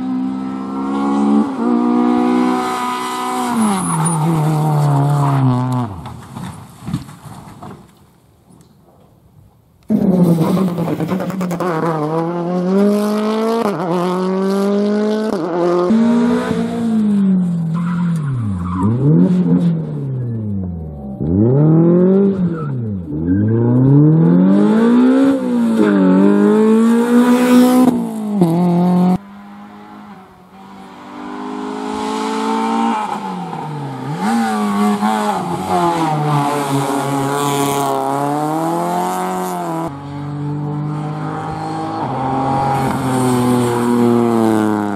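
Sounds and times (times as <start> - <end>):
rally car engines revving: 0.0 - 6.2, 9.9 - 44.9.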